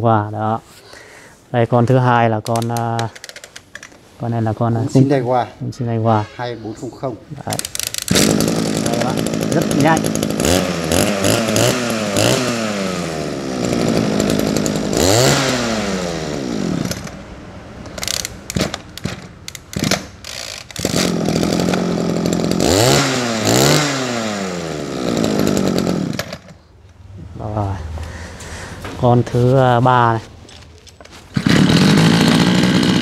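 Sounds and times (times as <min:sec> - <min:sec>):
sharp clicks: 0:02.4 - 0:04.0, 0:07.5 - 0:08.3, 0:17.8 - 0:21.1
brush cutter engine revving: 0:07.5 - 0:17.2, 0:17.9 - 0:26.6, 0:31.3 - 0:33.0.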